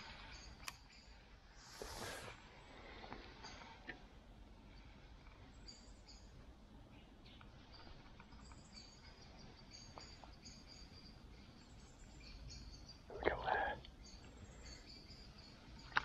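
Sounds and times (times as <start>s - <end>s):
faint high bird chirps: 0.0s - 1.3s, 4.7s - 16.0s
low steady background hush: 0.0s - 16.0s.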